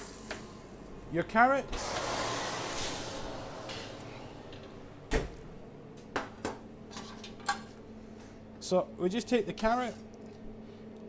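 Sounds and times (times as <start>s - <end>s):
rushing noise: 1.7s - 5.1s.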